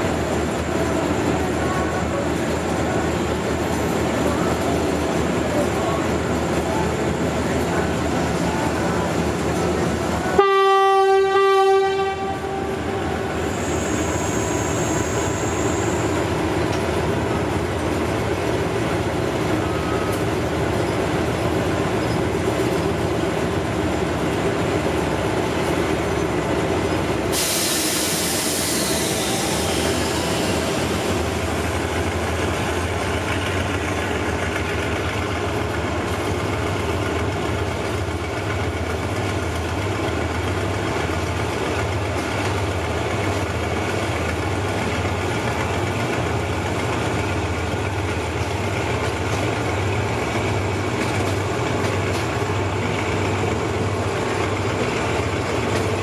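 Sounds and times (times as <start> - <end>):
locomotive horn: 10.3 - 13.4
air hiss: 27.3 - 31.3.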